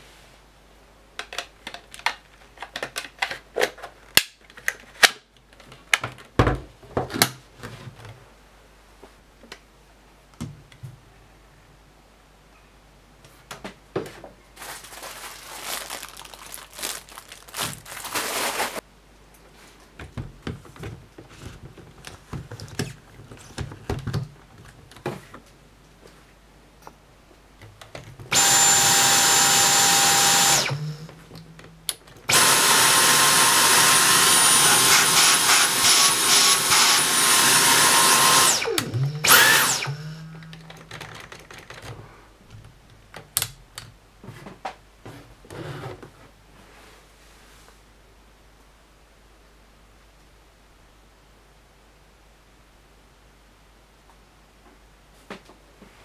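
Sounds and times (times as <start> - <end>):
cordless vacuum motor whining: 28.3 - 31.2, 32.3 - 40.3.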